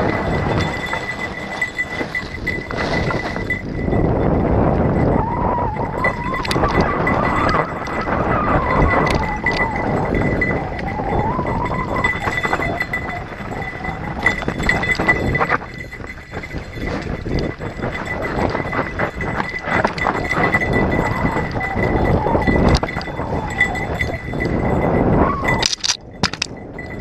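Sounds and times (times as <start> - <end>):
bike tyres crunching over stones: 0.0 - 3.7
bike clattering over bumps: 0.0 - 5.3, 6.1 - 24.5
wind buffeting microphone: 0.0 - 27.0.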